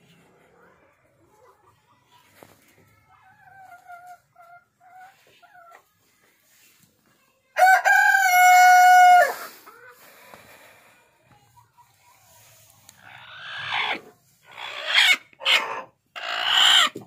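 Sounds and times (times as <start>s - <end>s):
chickens calling softly: 0.2s - 6.9s, 7.9s - 17.0s
rooster crowing: 7.6s - 9.4s.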